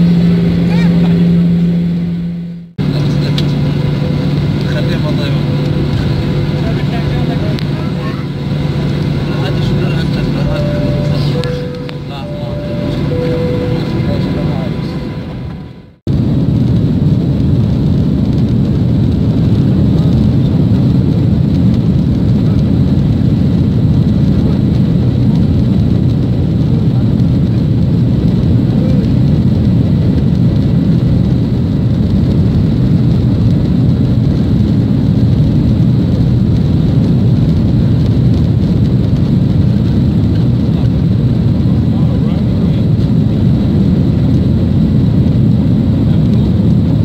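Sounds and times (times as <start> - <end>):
faint high whine: 0.0 - 16.0
jet engine low rumble: 0.0 - 47.0.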